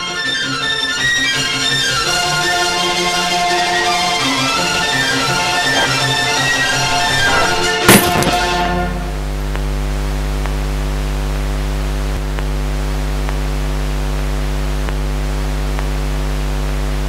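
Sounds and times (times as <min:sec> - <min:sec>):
low hum with hiss: 0:08.0 - 0:17.0.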